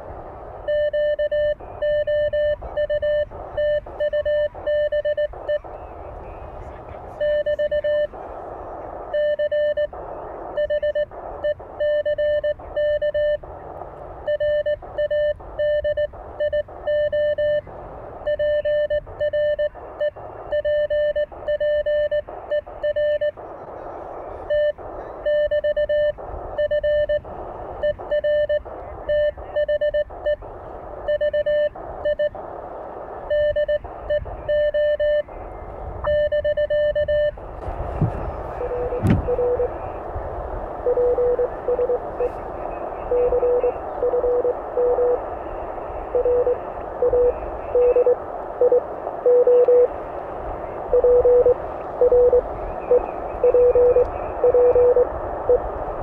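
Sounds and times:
radio band noise: 0:00.0 - 0:56.0
lower-pitched morse signal: 0:00.5 - 0:06.5, 0:07.1 - 0:08.2, 0:33.1 - 0:37.4, 0:38.0 - 0:40.2, 0:40.8 - 0:56.0
morse code sidetone beeping: 0:00.6 - 0:05.8, 0:07.2 - 0:08.2, 0:09.1 - 0:13.4, 0:14.2 - 0:23.4, 0:24.5 - 0:32.4, 0:33.2 - 0:35.3, 0:36.0 - 0:37.4, 0:38.5 - 0:40.0, 0:40.8 - 0:45.3, 0:46.0 - 0:49.9, 0:50.9 - 0:55.7.

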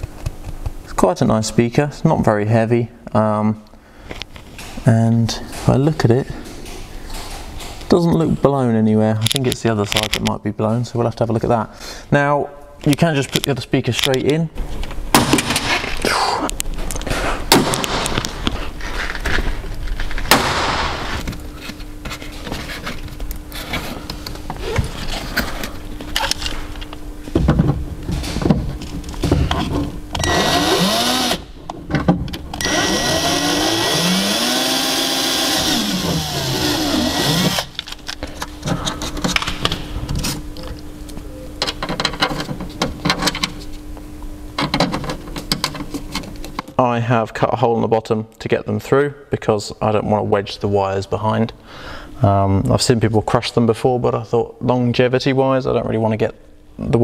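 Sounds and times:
knocks and handling noise: 0:21.1 - 0:30.1
small power tool motor: 0:30.2 - 0:31.5, 0:32.6 - 0:37.8.

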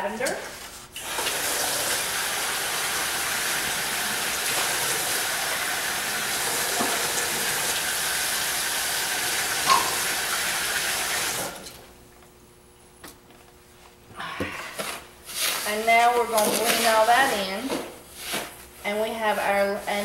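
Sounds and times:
water running from a tap: 0:01.0 - 0:11.7.

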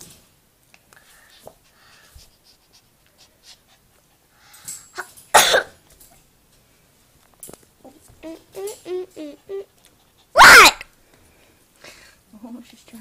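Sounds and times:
faint breathy noises: 0:00.8 - 0:05.0, 0:07.9 - 0:13.0.

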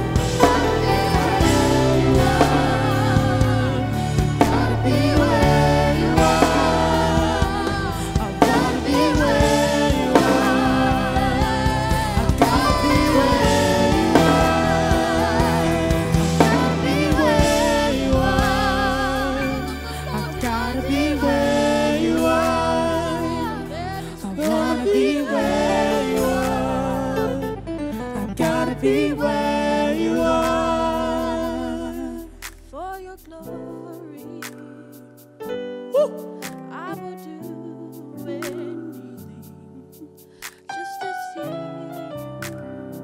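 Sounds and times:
drum kit: 0:00.0 - 0:27.4, 0:28.4 - 0:37.5
woman singing: 0:00.0 - 0:27.6, 0:28.2 - 0:35.0, 0:35.9 - 0:42.2
keyboard chords: 0:00.0 - 0:32.5
gospel band playing: 0:00.0 - 0:43.0.

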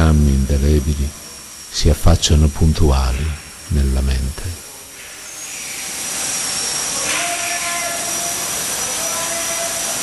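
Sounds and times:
thin high whine: 0:00.0 - 0:10.0
steam locomotive hissing: 0:04.9 - 0:10.0.

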